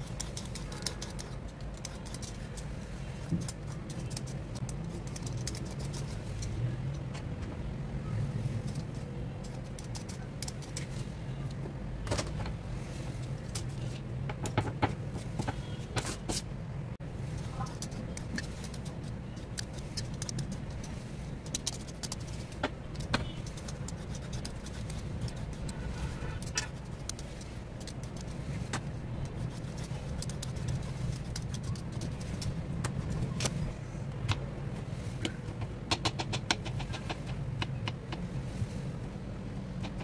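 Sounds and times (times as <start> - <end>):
vegetable peeler scraping: 0.0 - 6.5, 8.6 - 11.0, 17.3 - 33.6
steady low hum: 0.0 - 40.0.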